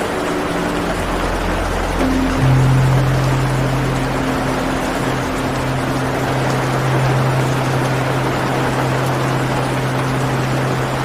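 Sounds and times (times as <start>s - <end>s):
low ambient music drone: 0.0s - 11.0s
rushing forest ambience: 0.0s - 11.0s.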